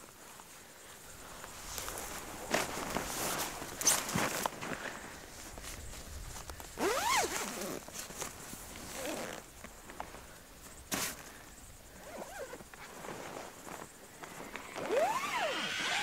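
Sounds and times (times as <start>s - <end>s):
tarp and sleeping gear rustling: 0.1s - 16.0s
short squeaky whines: 14.6s - 16.0s.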